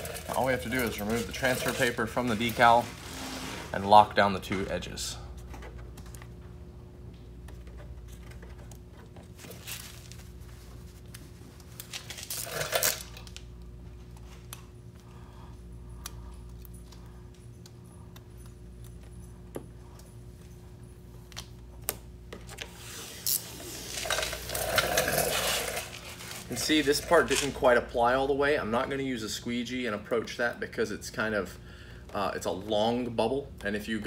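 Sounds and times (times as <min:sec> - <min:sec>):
paper peeling rasp: 0:00.0 - 0:03.8
faint steady hum: 0:00.0 - 0:34.0.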